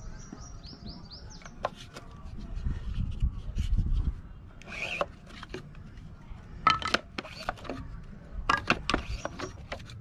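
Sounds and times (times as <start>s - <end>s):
squeegee scraping paint: 1.6s - 6.0s.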